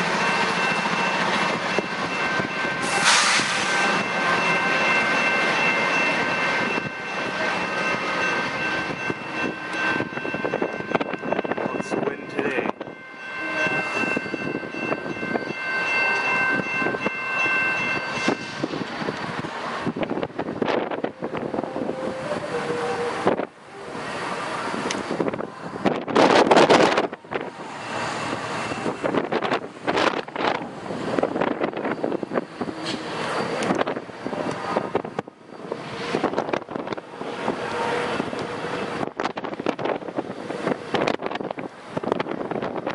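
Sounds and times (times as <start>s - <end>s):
high-pitched tones: 0.0s - 19.2s
diesel locomotive engines running: 0.0s - 42.9s
train wheels rumbling on track: 0.0s - 42.9s
wind buffeting microphone: 0.5s - 42.9s.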